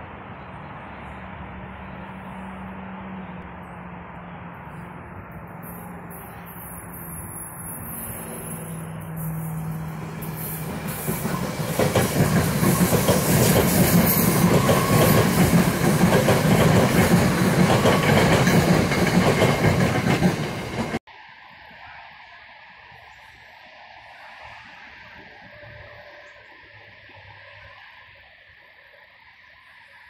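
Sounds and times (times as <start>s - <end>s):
faint outdoor background: 0.0s - 30.0s
train wheels rushing on rails: 4.0s - 21.1s.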